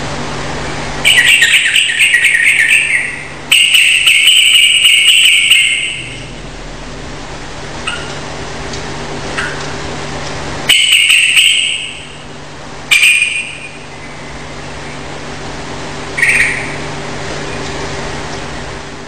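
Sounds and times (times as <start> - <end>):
bird song bursts: 1.0 - 6.3
low hum: 5.4 - 10.8.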